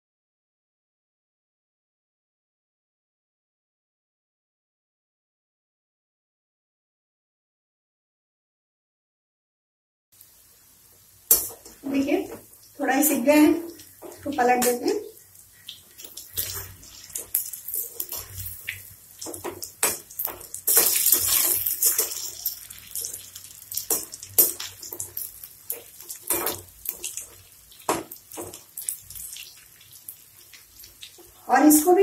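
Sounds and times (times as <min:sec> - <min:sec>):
batter sizzling in hot oil: 0:10.2 - 0:32.0
spoon clinking and scraping pan: 0:16.0 - 0:23.2, 0:23.8 - 0:29.0.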